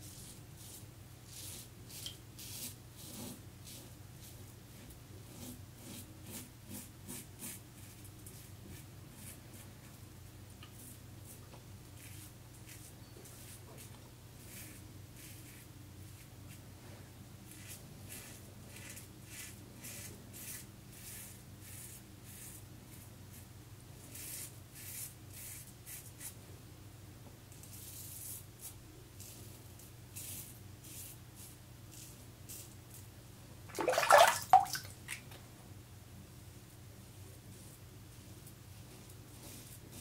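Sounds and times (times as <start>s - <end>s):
water splash: 33.7s - 34.9s.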